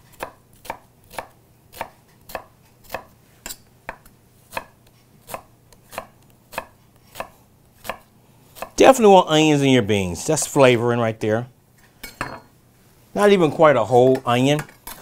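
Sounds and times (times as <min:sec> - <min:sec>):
knife chopping on wooden board: 0:00.1 - 0:08.8.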